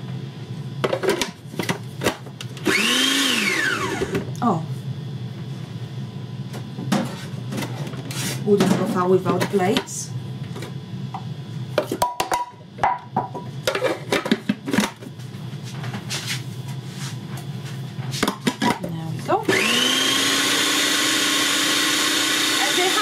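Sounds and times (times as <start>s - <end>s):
electric blender running: 2.1s - 4.6s, 18.5s - 23.0s
kitchen things clattering: 11.8s - 15.0s.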